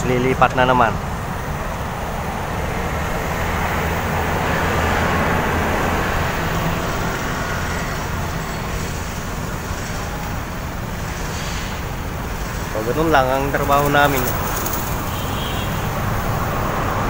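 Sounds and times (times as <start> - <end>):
low engine hum: 0.0 - 11.0
road traffic rushing: 0.0 - 17.0.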